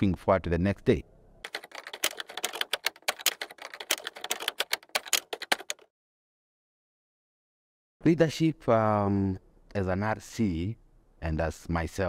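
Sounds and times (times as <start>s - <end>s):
keyboard typing clicks: 1.4s - 5.9s.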